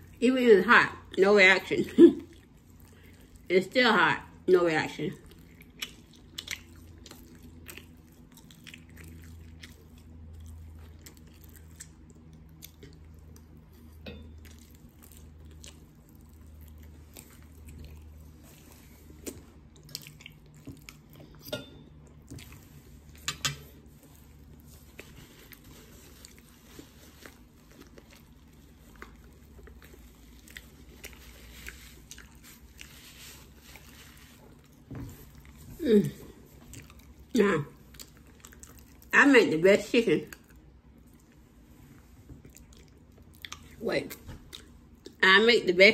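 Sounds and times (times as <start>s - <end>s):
person chewing food: 2.2s - 3.5s, 5.1s - 39.2s, 40.3s - 45.2s.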